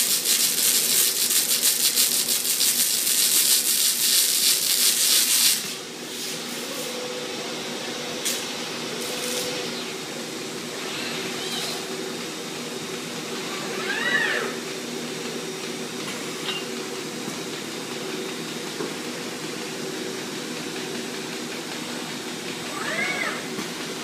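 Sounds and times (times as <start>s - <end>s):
welding arcs crackling and hissing: 0.0s - 6.9s, 8.2s - 10.1s
machinery hum: 4.9s - 24.0s.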